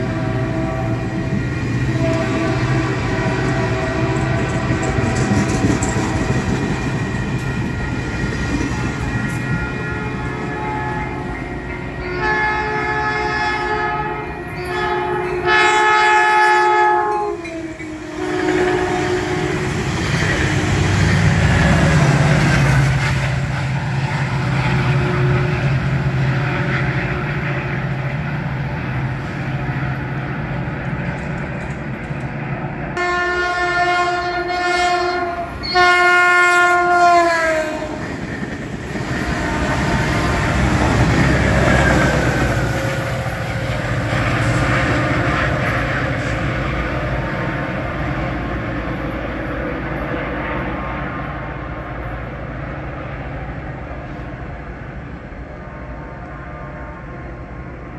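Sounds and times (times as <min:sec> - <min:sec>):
train horn blasts: 0:00.0 - 0:07.0, 0:08.7 - 0:21.0, 0:24.8 - 0:28.1, 0:33.0 - 0:38.1, 0:39.0 - 0:43.1
train rumbling: 0:00.0 - 0:57.9
wheels clacking on rail: 0:00.8 - 0:12.2, 0:14.5 - 0:33.0, 0:33.8 - 0:55.4.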